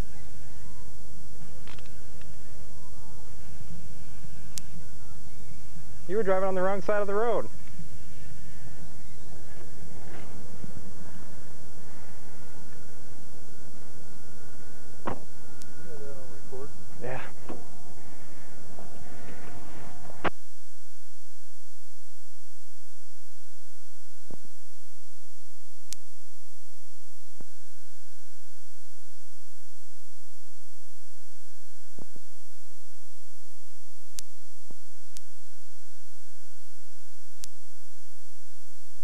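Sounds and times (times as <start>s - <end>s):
electrical hum and hiss: 0.0s - 39.0s
faint high whine: 0.0s - 39.0s
faint clicks: 1.4s - 2.4s.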